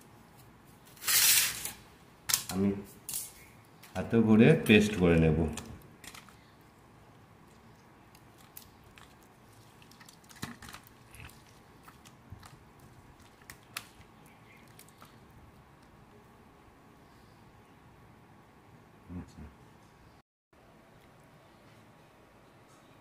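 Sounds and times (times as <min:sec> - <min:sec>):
wet squelches of mashed fruit: 0:07.1 - 0:16.0.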